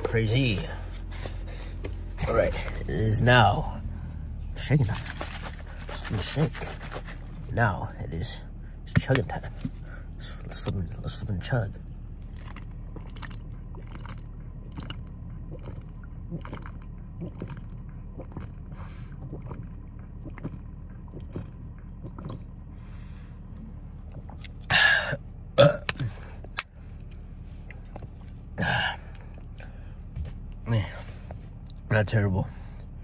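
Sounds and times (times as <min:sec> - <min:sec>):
person gulping a drink: 0:12.3 - 0:22.6, 0:24.0 - 0:26.2.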